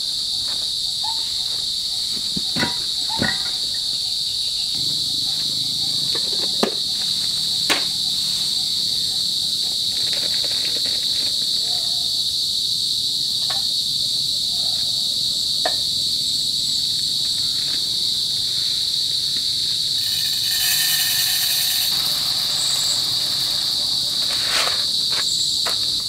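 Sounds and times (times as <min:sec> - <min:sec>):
crickets chirping: 0:00.0 - 0:26.0
rush of hiss: 0:20.0 - 0:25.0.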